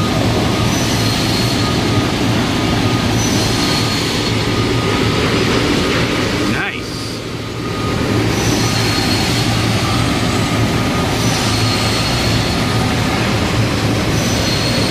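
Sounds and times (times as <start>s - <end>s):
machinery rushing and humming: 0.0s - 14.9s
faint high whistling tones: 6.9s - 12.8s.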